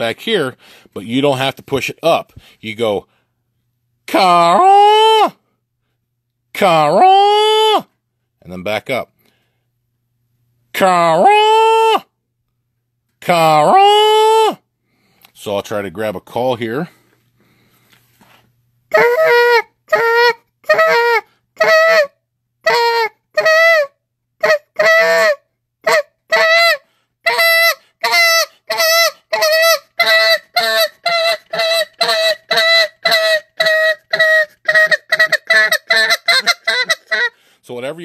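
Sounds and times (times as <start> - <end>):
goose call honking notes: 24.4 - 37.4.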